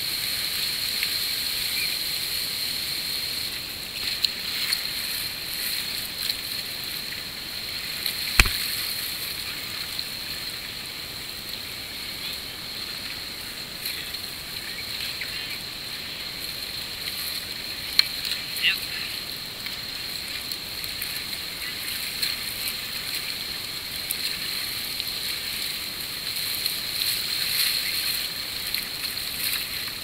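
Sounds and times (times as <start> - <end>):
sharp knock: 8.4 - 8.6.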